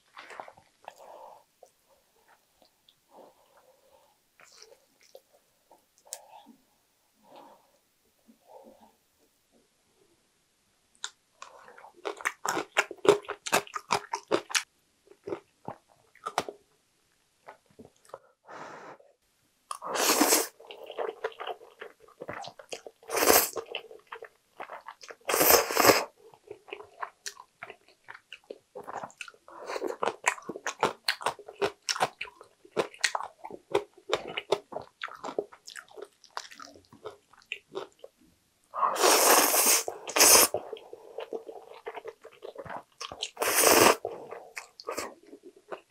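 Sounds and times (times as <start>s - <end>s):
slurping noodles: 19.8s - 21.2s, 23.0s - 23.7s, 25.2s - 26.1s, 38.8s - 42.0s, 43.2s - 45.2s
wet chewing: 26.4s - 38.1s.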